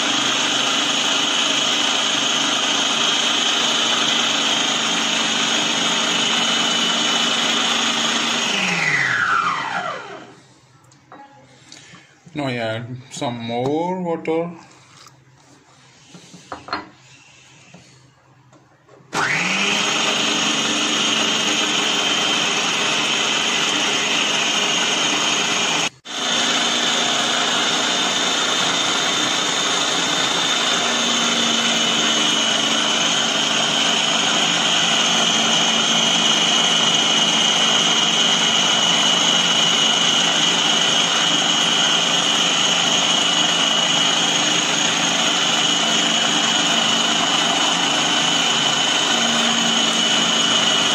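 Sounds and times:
food processor motor whining: 0.0s - 10.4s, 19.1s - 50.9s.

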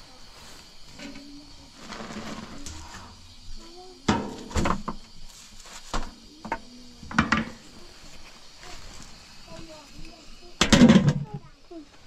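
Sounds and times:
sharp knocks and clatters: 4.1s - 5.1s, 5.9s - 7.6s, 10.6s - 11.4s.

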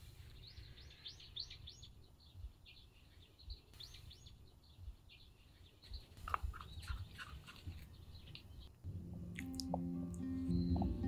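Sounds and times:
faint bird chirps: 0.0s - 8.8s.

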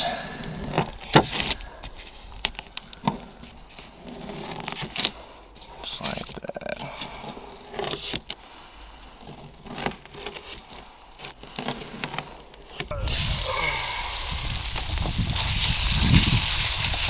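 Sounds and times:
fish sizzling in a pan: 13.0s - 17.0s.

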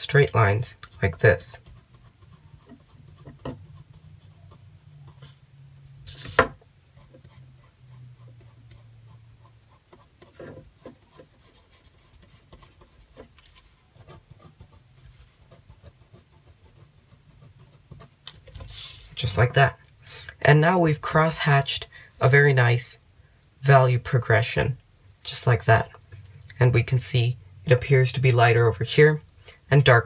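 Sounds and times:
pencil scratching on paper: 1.6s - 5.4s, 7.0s - 13.3s, 14.0s - 18.1s.

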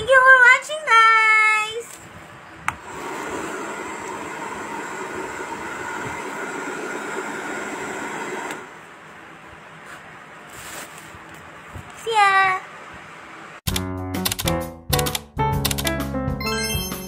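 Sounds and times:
hair dryer running: 2.8s - 8.8s.

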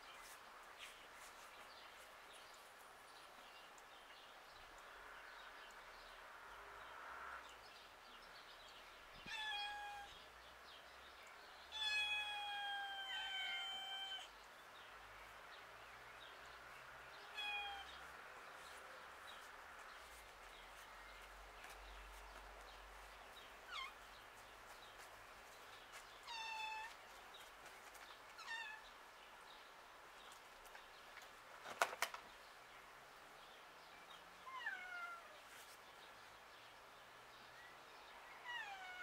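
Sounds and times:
cat meowing: 9.3s - 10.1s, 11.7s - 14.3s, 17.3s - 17.9s, 34.5s - 35.4s.

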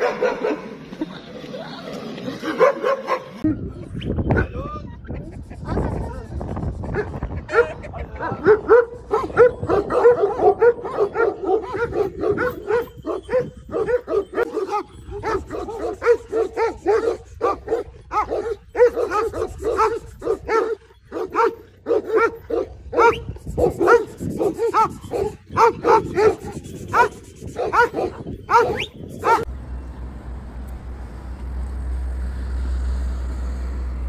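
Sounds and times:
dog barking rapidly: 6.9s - 29.5s.

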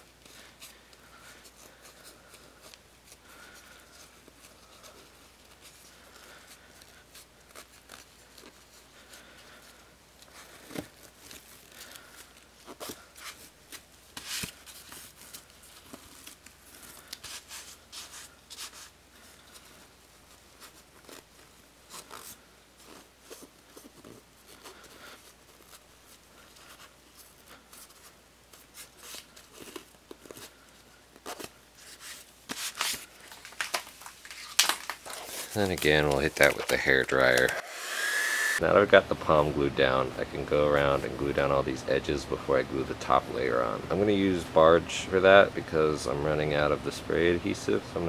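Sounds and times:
fabric rustling: 0.0s - 37.5s.

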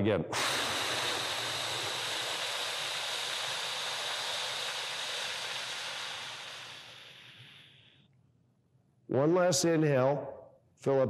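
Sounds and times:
man exhaling forcefully: 0.3s - 7.9s.

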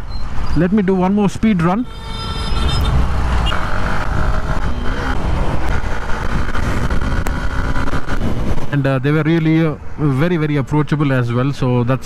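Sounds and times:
motorcycle engine rumble: 0.0s - 8.8s
wind and road noise: 0.0s - 12.0s.

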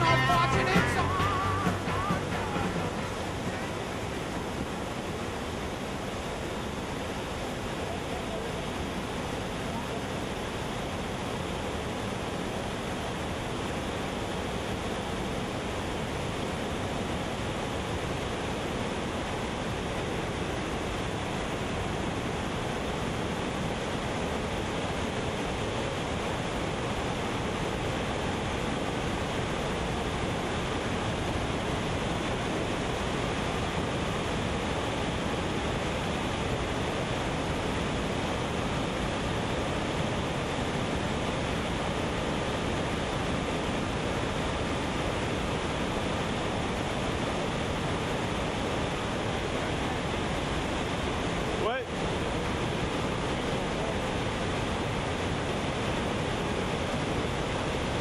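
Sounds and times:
water rushing over spillway: 0.0s - 58.0s.

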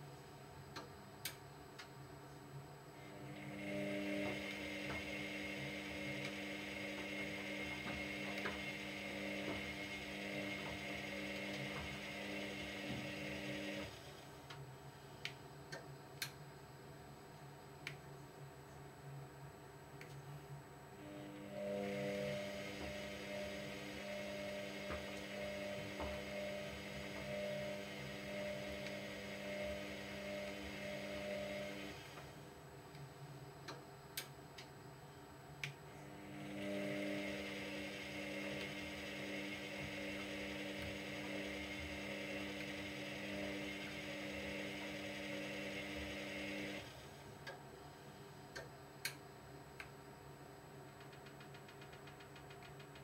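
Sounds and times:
washer-dryer drum motor humming: 3.0s - 14.2s, 21.0s - 32.4s, 35.9s - 47.6s.

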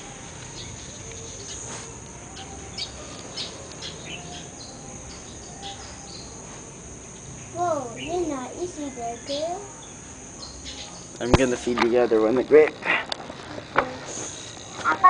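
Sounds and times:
bird chirps: 0.0s - 11.6s
high-pitched insect trill: 0.0s - 15.0s.

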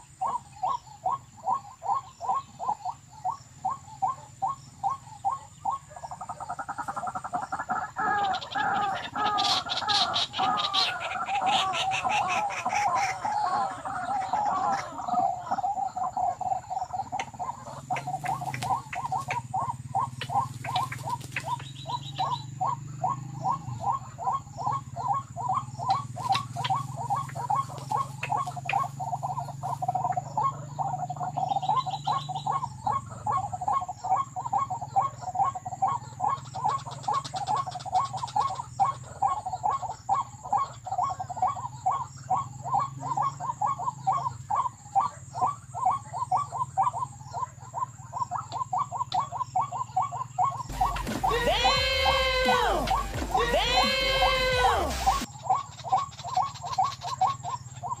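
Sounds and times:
waterhen calling: 0.0s - 58.0s
low hum: 50.7s - 55.3s.

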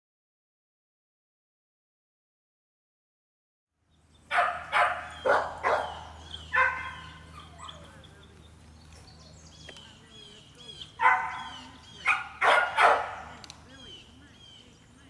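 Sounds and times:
birds chirping: 3.8s - 15.0s
steady low hum: 3.9s - 15.0s
dog barking: 4.3s - 8.0s, 11.0s - 13.4s.

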